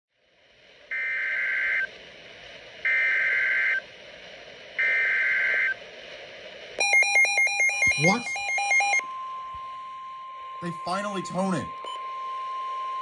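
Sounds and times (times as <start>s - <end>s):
radio static hiss: 0.1s - 13.0s
data tone bursts: 6.8s - 13.0s.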